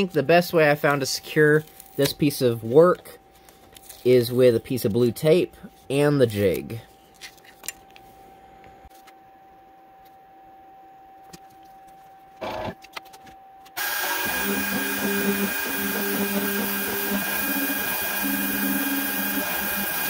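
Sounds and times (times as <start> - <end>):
faint steady hum: 0.0 - 13.8
router spindle running at high speed: 13.8 - 20.0
stepper motors whining: 13.8 - 20.0.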